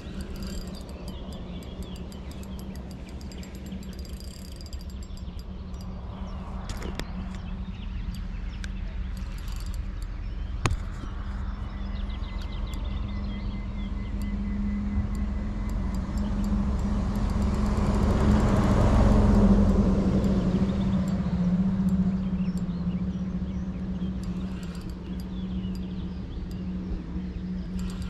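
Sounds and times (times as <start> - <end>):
low engine hum: 0.0 - 28.0
sharp click: 8.1 - 11.2
motor vehicle passing: 15.5 - 21.9.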